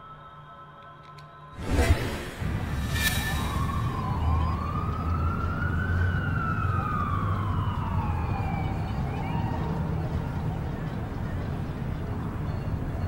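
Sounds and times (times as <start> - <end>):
low rumble: 1.6 - 5.4
distant siren wailing: 2.5 - 13.0.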